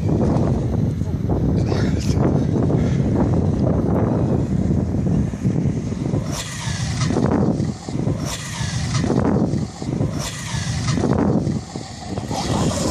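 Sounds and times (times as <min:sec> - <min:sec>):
wheels over loose sand: 0:00.0 - 0:12.9
toy truck motor surging: 0:06.1 - 0:12.9.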